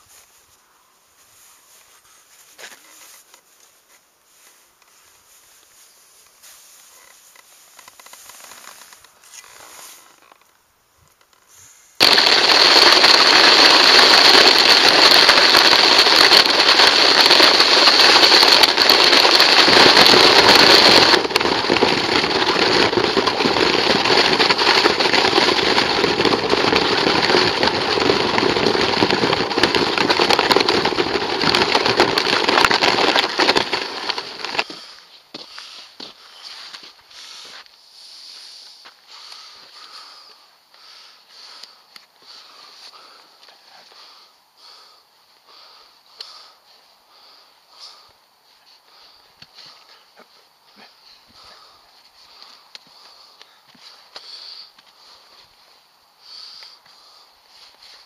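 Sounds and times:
sled runners scraping on ice: 6.3 - 10.3, 11.5 - 40.0.

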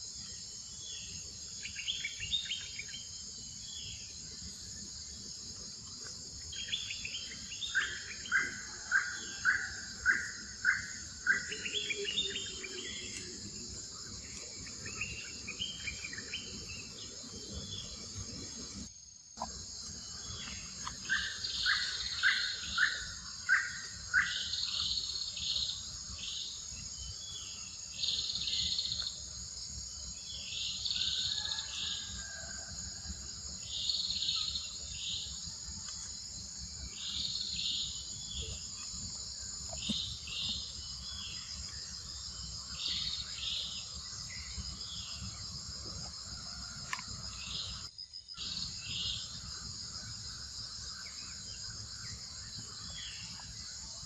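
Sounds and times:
high-pitched insect chorus: 0.0 - 54.0.

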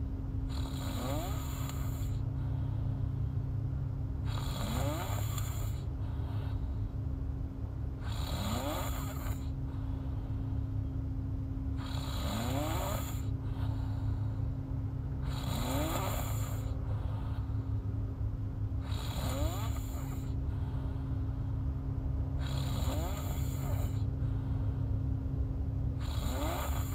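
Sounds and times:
low hum: 0.0 - 0.6, 1.4 - 4.4, 5.2 - 8.2, 9.0 - 11.8, 13.1 - 19.0, 19.8 - 22.5, 23.4 - 26.0
woman snoring: 0.5 - 2.2, 4.2 - 6.6, 8.0 - 9.6, 11.8 - 14.2, 15.2 - 17.4, 18.8 - 20.4, 22.4 - 24.1, 26.0 - 26.9.

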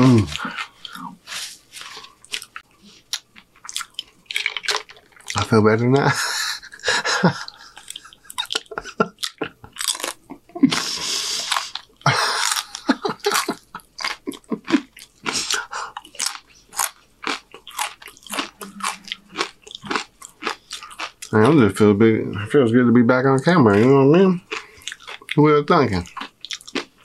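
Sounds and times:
crunching tortilla chips: 0.0 - 5.5, 9.2 - 21.4, 26.1 - 27.0.

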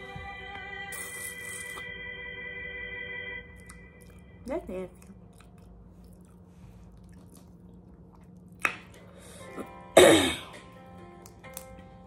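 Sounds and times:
faint background music: 0.0 - 12.0
woman coughing: 10.0 - 10.6.

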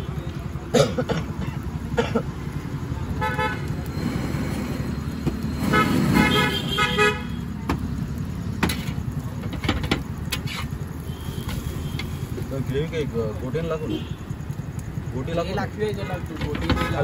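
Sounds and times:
vehicle horn tooting: 3.2 - 3.8, 5.7 - 7.4.

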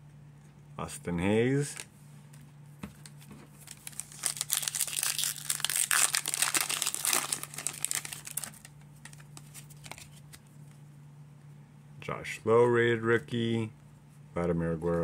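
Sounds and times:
wrapper tearing and crinkling: 3.6 - 10.2.

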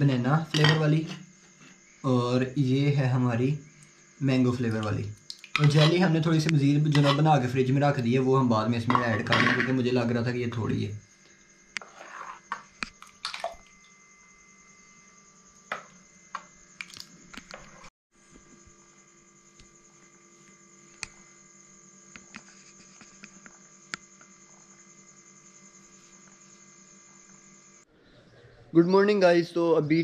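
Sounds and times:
electrical hum: 0.0 - 30.0
spoon scraping in pot: 5.6 - 6.2, 6.9 - 7.4, 11.8 - 12.8.

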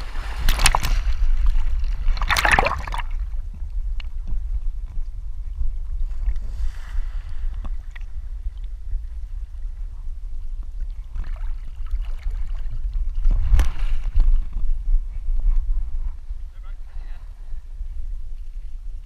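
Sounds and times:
water sloshing: 0.0 - 3.3
steady low rumble: 0.0 - 19.0
dog splashing out of water: 2.2 - 3.1.

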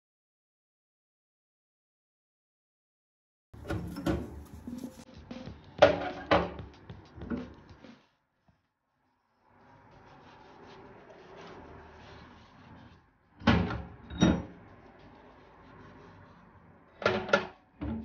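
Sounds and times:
metal filters clanking: 3.6 - 5.0
metal filters handling noise: 3.6 - 5.0.

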